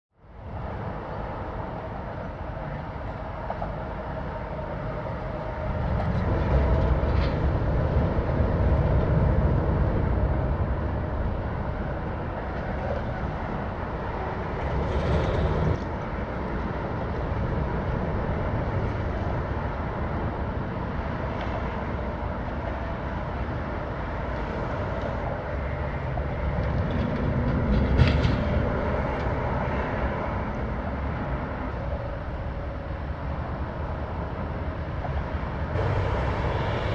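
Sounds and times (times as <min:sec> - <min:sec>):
low mechanical rumble: 0:22.2 - 0:36.9.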